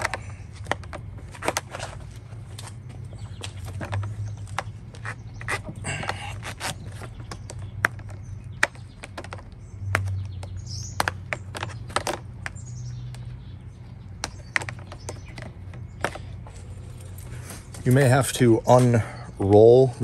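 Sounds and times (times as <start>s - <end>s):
steady low hum: 0.0s - 20.0s
squeaky rubbing of foam: 4.9s - 7.4s.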